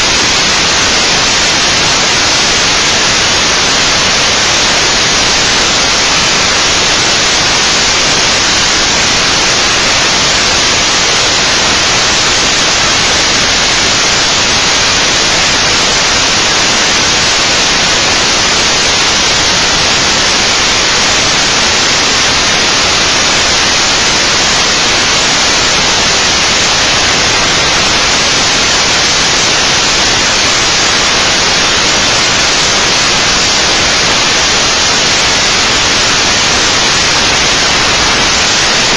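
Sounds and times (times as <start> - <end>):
static hiss: 0.0 - 38.9.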